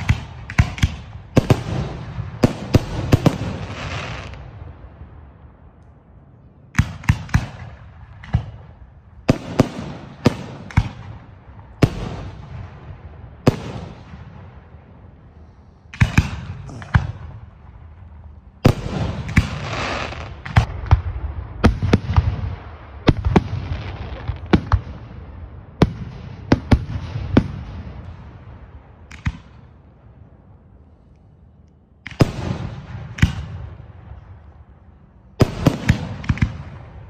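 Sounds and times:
fireworks hissing and crackling: 0:00.0 - 0:04.5, 0:18.6 - 0:20.7
fireworks bangs: 0:00.0 - 0:05.3, 0:06.7 - 0:15.3, 0:15.9 - 0:29.7, 0:32.1 - 0:34.7, 0:35.4 - 0:37.0.

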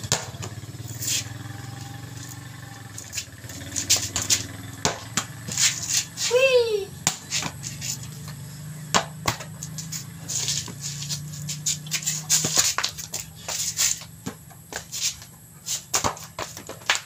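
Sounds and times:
basketball knocks and taps: 0:00.0 - 0:00.6, 0:03.2 - 0:05.8, 0:08.3 - 0:09.8, 0:11.8 - 0:15.3, 0:15.9 - 0:17.0
steady low hum: 0:00.0 - 0:17.0.

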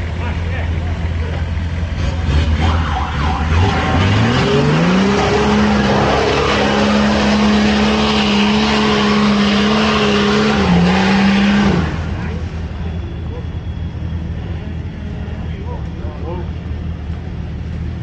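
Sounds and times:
car engine revving: 0:00.0 - 0:13.4
loud rushing noise: 0:01.9 - 0:12.8.

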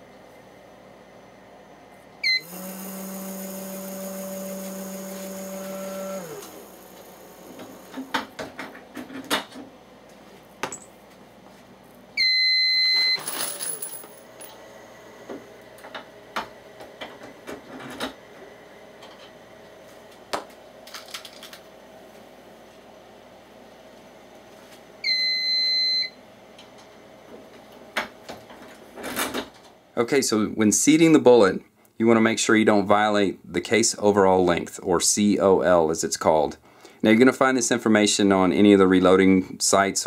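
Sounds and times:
dispensing motor running: 0:02.2 - 0:09.0, 0:12.7 - 0:19.6
loud beep: 0:12.2 - 0:13.2, 0:25.1 - 0:26.2.

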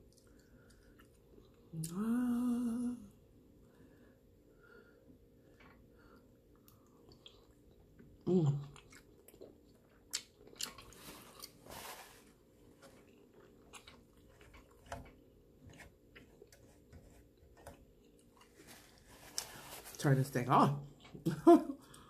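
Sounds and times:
wet chewing: 0:06.6 - 0:11.7, 0:12.7 - 0:18.7.

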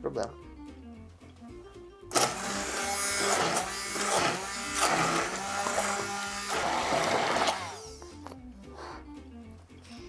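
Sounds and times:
background music: 0:00.0 - 0:10.0
immersion blender running: 0:02.1 - 0:08.0.

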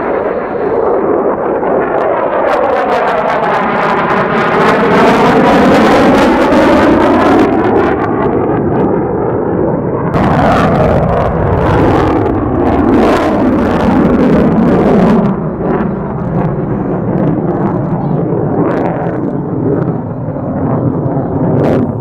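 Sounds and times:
crackling jet noise climbing: 0:00.0 - 0:22.0
fighter jet engine passing: 0:00.0 - 0:22.0.

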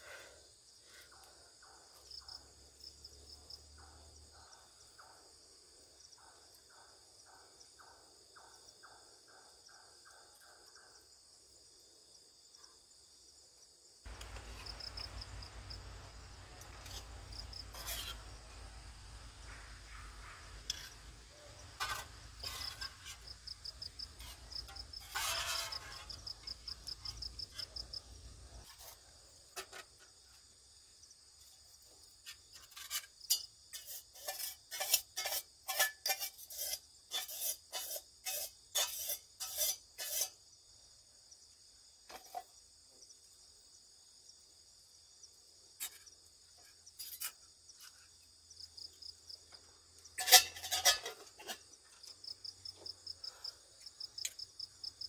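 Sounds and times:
crickets chirping: 0:00.0 - 0:55.0
quick scraping strokes: 0:16.6 - 0:27.8, 0:33.8 - 0:40.4.

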